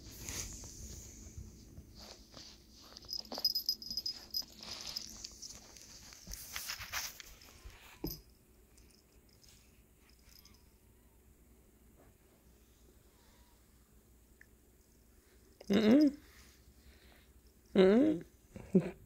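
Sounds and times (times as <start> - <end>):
rustling: 0.0 - 8.2.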